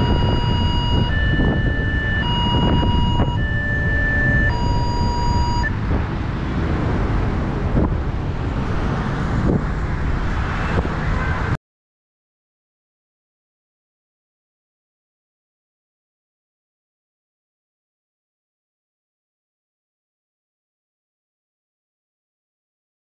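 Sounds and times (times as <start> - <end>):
level-crossing alarm two-tone: 0.0 - 5.8
low rumble: 0.0 - 10.6.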